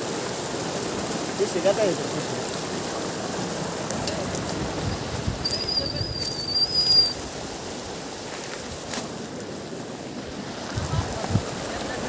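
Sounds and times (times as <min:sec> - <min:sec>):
river water rushing over rocks: 0:00.0 - 0:12.0
high wavering bird whistle: 0:05.4 - 0:07.2.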